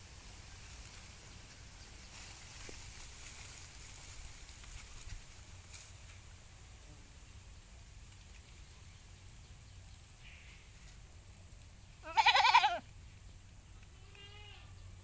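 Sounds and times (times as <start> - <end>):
goat bleating: 12.0 - 12.8, 13.9 - 14.8.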